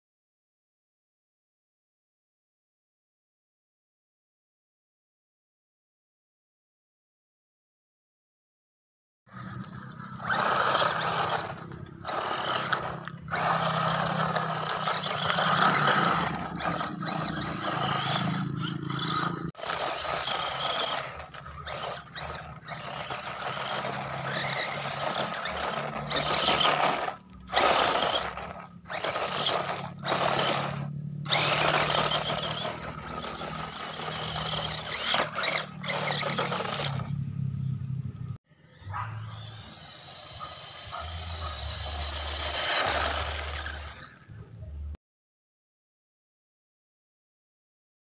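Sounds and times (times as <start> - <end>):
tyres scrabbling over gravel: 9.3 - 37.1, 41.0 - 44.2
electric motor whining: 9.3 - 37.9, 38.6 - 45.0.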